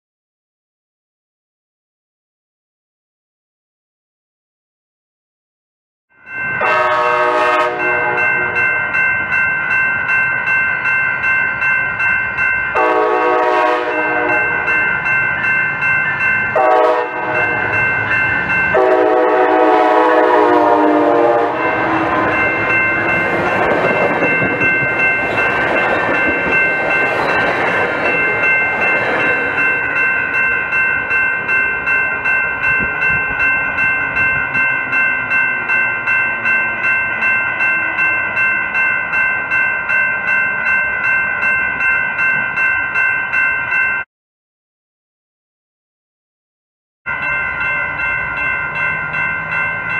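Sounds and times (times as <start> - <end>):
crossing warning bell ringing: 6.1 - 44.1, 47.1 - 49.9
train cars rumbling past: 6.3 - 44.0, 47.1 - 49.9
train horn blasts: 6.6 - 8.7, 12.8 - 14.8, 16.6 - 17.8, 18.7 - 22.5.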